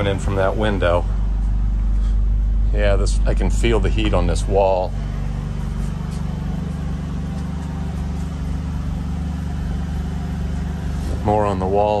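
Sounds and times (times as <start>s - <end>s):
air conditioner humming: 0.0s - 12.0s.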